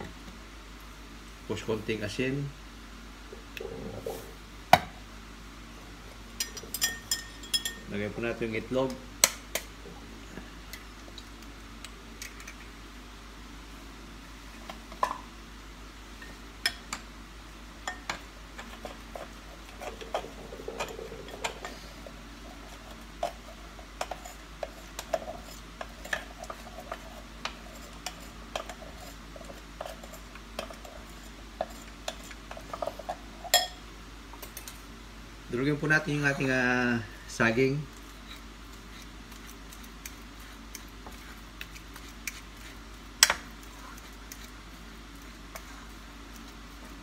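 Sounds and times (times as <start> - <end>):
utensil clinking on glass bowl: 6.4 - 7.9.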